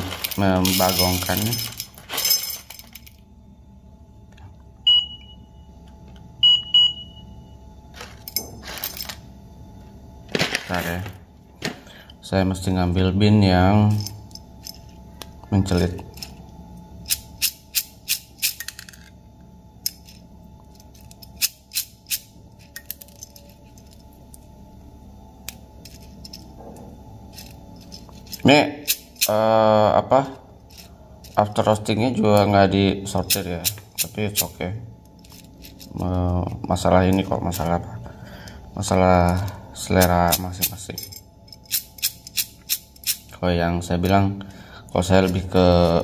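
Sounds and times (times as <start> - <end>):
coffee beans rattling in metal cup: 0.0 - 3.0
digital scale beeping: 4.9 - 5.4, 6.4 - 7.3.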